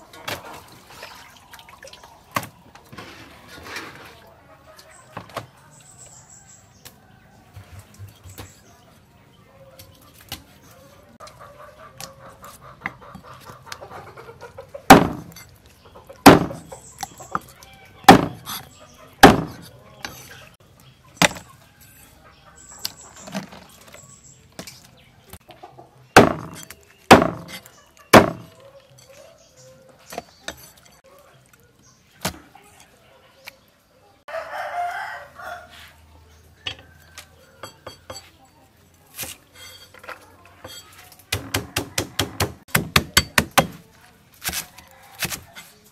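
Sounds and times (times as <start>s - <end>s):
chickens clucking: 0.0s - 42.7s
cleaver chopping on wooden block: 14.9s - 15.4s, 16.2s - 16.7s, 18.1s - 18.6s, 19.2s - 19.7s, 26.2s - 28.5s, 41.3s - 43.8s
rooster crowing: 34.3s - 35.9s.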